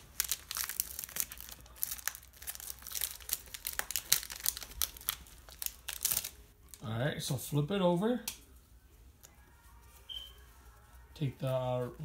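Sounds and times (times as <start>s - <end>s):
foil wrapper crinkling and tearing: 0.0s - 6.9s.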